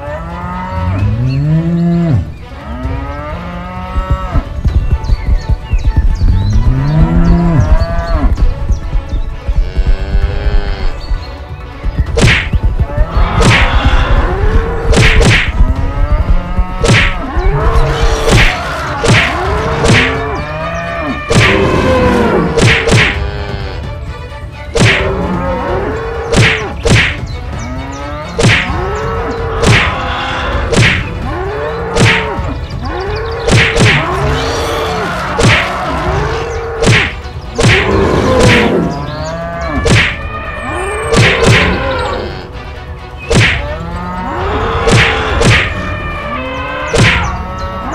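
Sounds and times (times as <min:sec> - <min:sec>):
bulls bellowing and mooing: 0:00.0 - 0:05.2, 0:05.9 - 0:11.2, 0:12.8 - 0:23.9, 0:24.8 - 0:26.8, 0:27.5 - 0:47.9
sharp hits and thuds: 0:03.9 - 0:20.3, 0:21.3 - 0:21.7, 0:22.5 - 0:23.2, 0:24.8 - 0:25.1, 0:26.3 - 0:27.3, 0:28.4 - 0:28.8, 0:29.6 - 0:30.1, 0:30.7 - 0:31.2, 0:32.0 - 0:32.5, 0:33.4 - 0:34.2, 0:35.4 - 0:35.8, 0:36.8 - 0:38.7, 0:39.8 - 0:40.2, 0:43.2 - 0:43.7, 0:44.8 - 0:45.8, 0:46.9 - 0:47.4.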